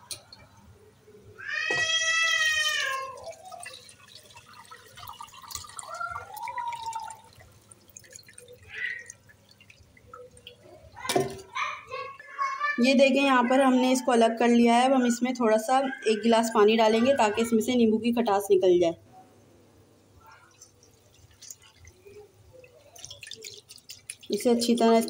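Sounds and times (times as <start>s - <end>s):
high drawn-out cry: 1.4s - 3.4s, 5.8s - 7.4s, 8.6s - 9.1s
liquid dripping through strainer: 1.8s - 11.9s, 20.3s - 25.0s.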